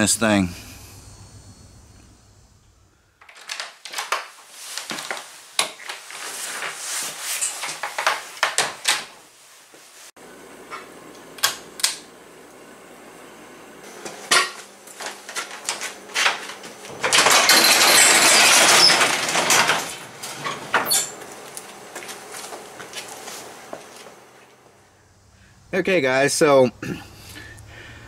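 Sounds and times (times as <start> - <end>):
knocks and clanks: 15.4 - 21.3
garage door rattling open: 15.5 - 21.2.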